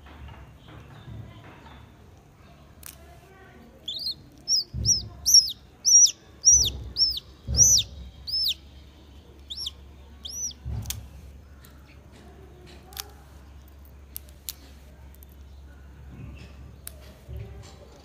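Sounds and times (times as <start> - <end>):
chick peeping: 3.8 - 11.1.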